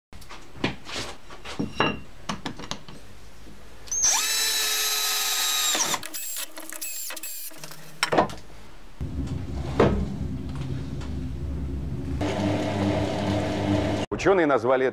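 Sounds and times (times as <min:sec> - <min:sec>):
power drill driving screws: 0:03.9 - 0:07.6
low steady hum: 0:08.5 - 0:12.2.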